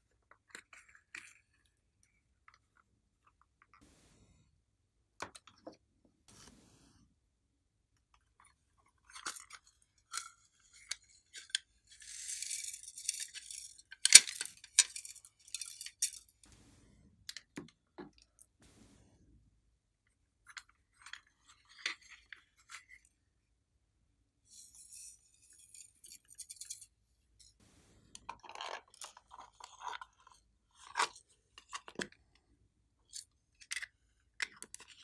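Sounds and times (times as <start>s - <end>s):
glitter rattling hiss: 3.8s - 4.5s, 6.3s - 7.1s, 14.4s - 17.5s, 18.6s - 19.5s, 27.5s - 29.0s.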